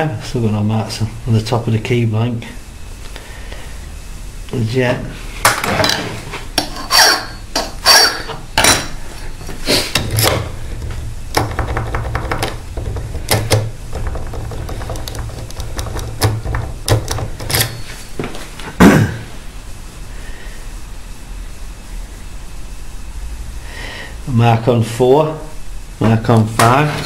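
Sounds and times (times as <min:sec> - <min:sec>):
metallic clicks and knocks: 0:11.3 - 0:17.8
key working in a lock: 0:14.6 - 0:17.8.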